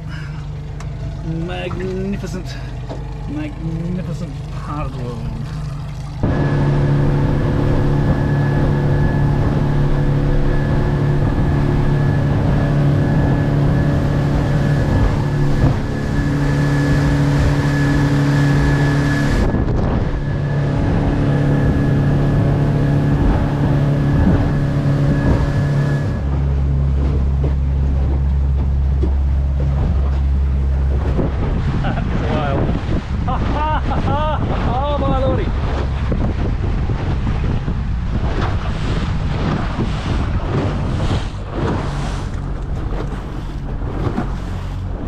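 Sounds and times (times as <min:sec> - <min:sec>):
thin engine whine: 0:00.0 - 0:33.6
outboard motor running: 0:00.0 - 0:45.0.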